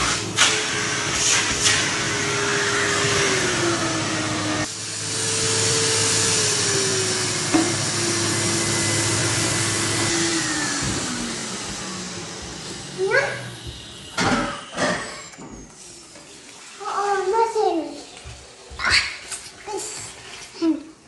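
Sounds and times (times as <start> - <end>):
vacuum cleaner motor whine: 0.0 - 16.8.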